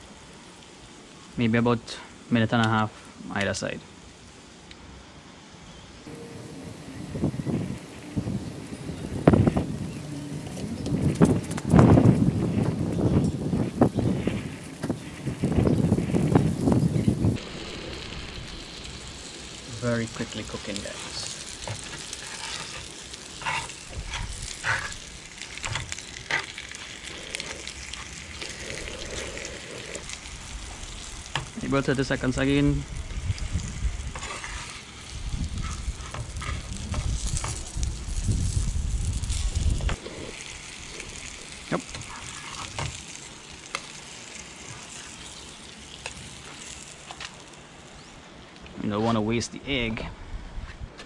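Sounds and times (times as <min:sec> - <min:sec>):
fish frying in oil: 0:06.1 - 0:48.0
sharp frying pops: 0:10.4 - 0:29.3, 0:30.0 - 0:48.6.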